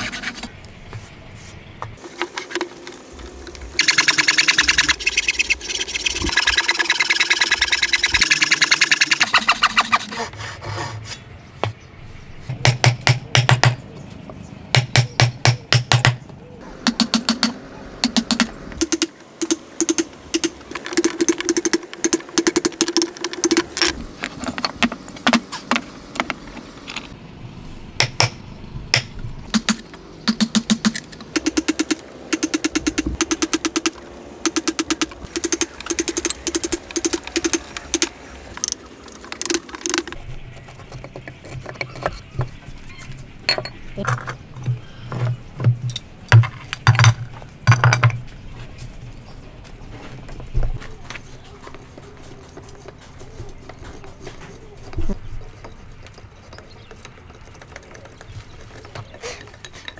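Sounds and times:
hammer striking a wood chisel: 0:28.0 - 0:38.1.

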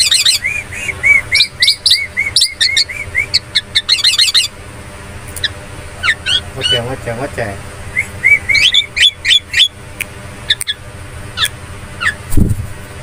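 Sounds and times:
myna chirping: 0:00.0 - 0:04.6, 0:05.3 - 0:06.9, 0:07.9 - 0:12.4
high downward-sweeping bird notes: 0:07.8 - 0:09.8.

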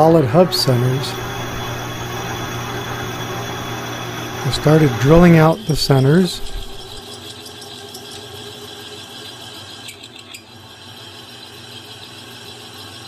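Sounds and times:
metal lathe humming: 0:00.0 - 0:08.0
drill bit scraping metal: 0:00.0 - 0:12.6.

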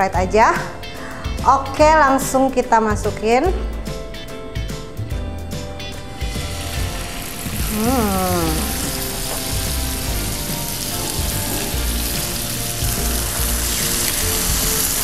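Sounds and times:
chicken sizzling in a pan: 0:06.2 - 0:15.0.

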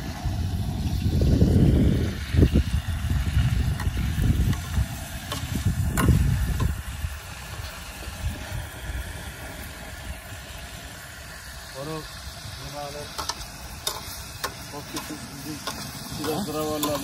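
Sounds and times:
gas burner rumble: 0:00.0 - 0:17.0
meat sizzling: 0:00.0 - 0:17.0
metal spatula clicking on pot: 0:13.1 - 0:17.0.

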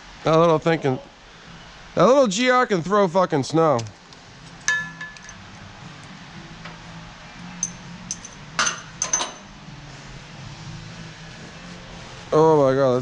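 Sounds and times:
metal coupler clinks: 0:04.5 - 0:05.5, 0:07.6 - 0:09.5.

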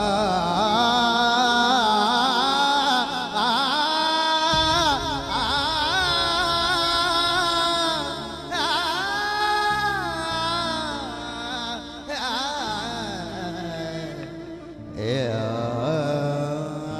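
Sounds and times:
instrumental backing: 0:00.0 - 0:16.9
person singing ornamented notes: 0:00.0 - 0:16.9.

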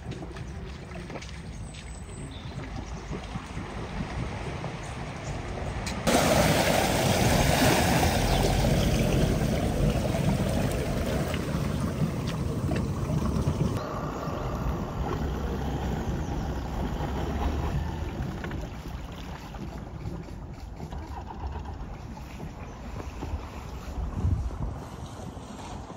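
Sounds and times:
low engine rumble: 0:00.0 - 0:25.9
water rushing and splashing: 0:02.6 - 0:20.1.

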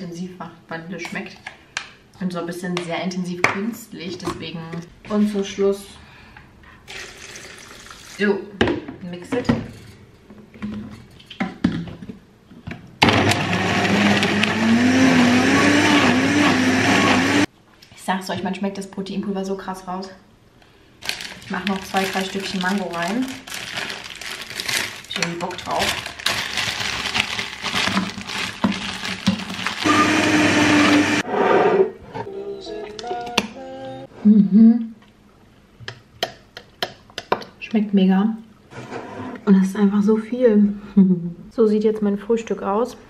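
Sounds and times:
blender running: 0:13.0 - 0:17.5, 0:29.2 - 0:31.3.

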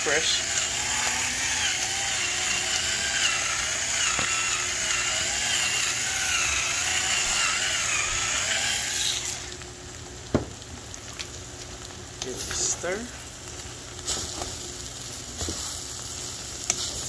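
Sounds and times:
electric pepper grinder whine: 0:00.0 - 0:10.5.

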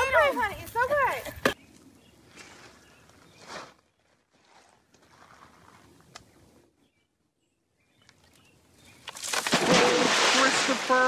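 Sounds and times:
faint outdoor background: 0:00.0 - 0:11.0
splash and churning water: 0:09.2 - 0:11.0.

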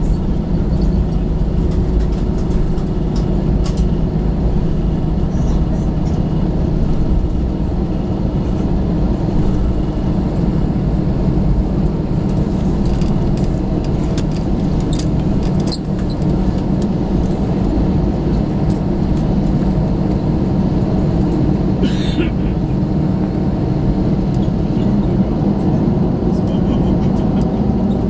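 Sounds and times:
airplane cabin hum: 0:00.0 - 0:28.0.

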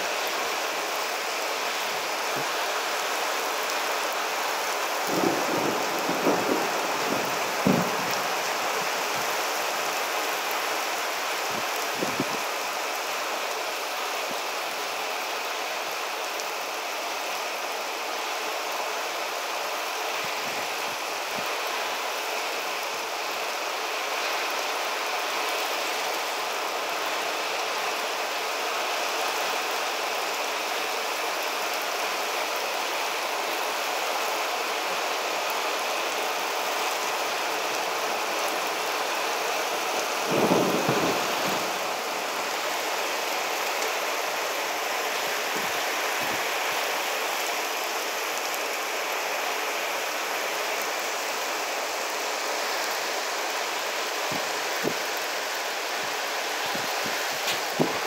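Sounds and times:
heavy rain falling: 0:00.0 - 0:58.0
thunder rumble: 0:05.1 - 0:09.4, 0:40.2 - 0:42.2.

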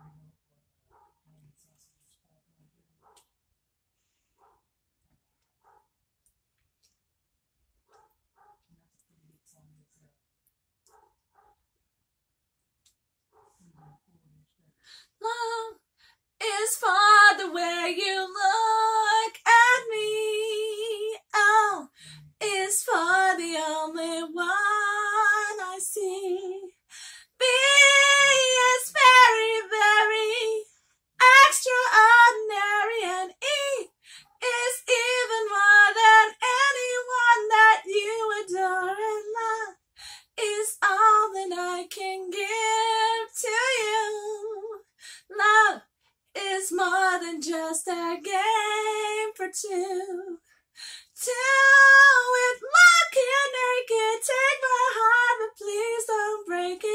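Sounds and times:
woman singing unaccompanied: 0:15.2 - 0:15.8, 0:16.4 - 0:45.8, 0:46.4 - 0:56.9.

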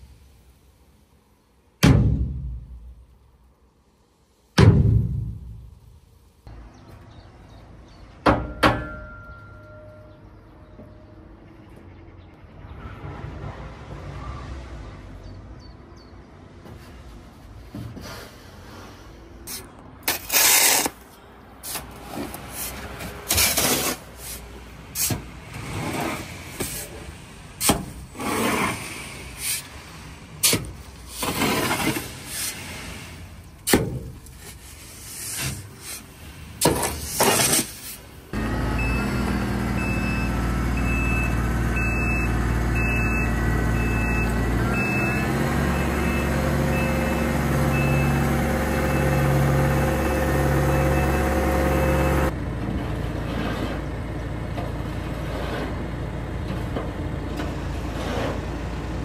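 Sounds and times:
diesel vehicle running: 0:38.1 - 0:59.0
reversing beeper: 0:38.6 - 0:52.3.

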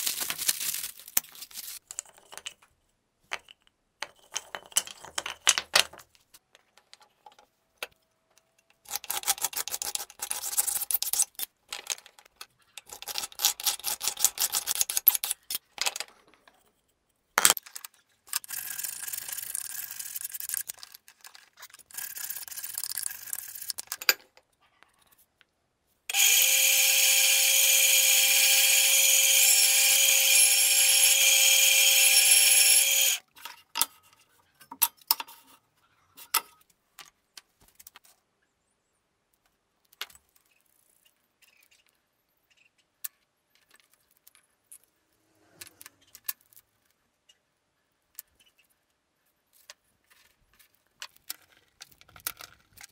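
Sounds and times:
band saw cutting wood: 0:26.1 - 0:33.2.

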